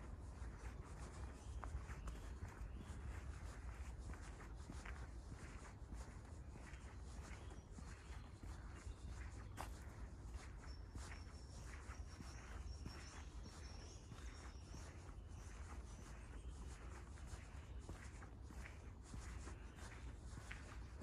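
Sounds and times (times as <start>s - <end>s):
footsteps on wet path: 0.0s - 21.0s.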